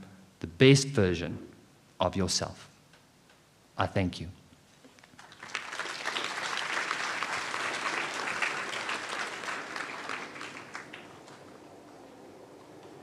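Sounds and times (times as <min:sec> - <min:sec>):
audience clapping: 0:05.0 - 0:12.2.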